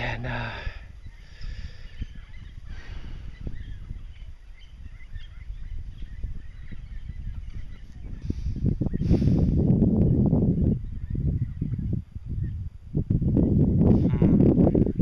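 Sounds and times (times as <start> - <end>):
faint bird calls: 0.0 - 9.5
low rumbling: 0.0 - 15.0.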